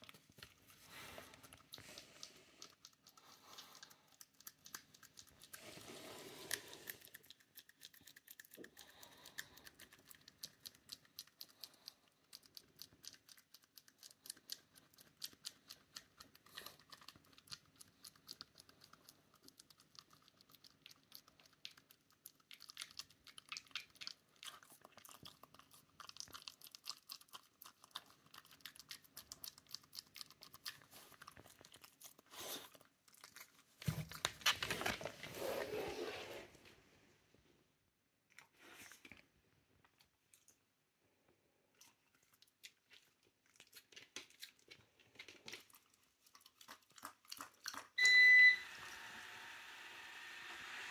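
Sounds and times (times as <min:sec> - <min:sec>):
dog teeth nibbling paw: 0:06.6 - 0:34.4.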